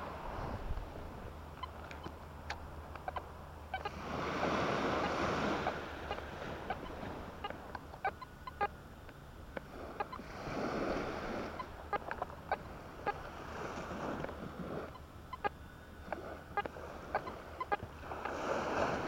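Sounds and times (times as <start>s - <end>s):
waves washing on shore: 3.8s - 8.7s, 9.4s - 15.4s, 16.0s - 19.0s.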